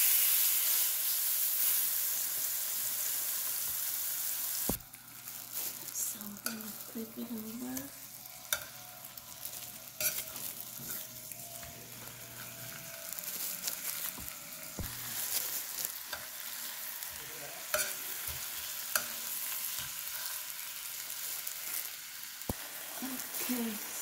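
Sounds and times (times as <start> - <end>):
chicken sizzling in hot oil: 0.0 - 24.0
metal utensil tapping a pan: 8.5 - 8.8, 17.7 - 19.9.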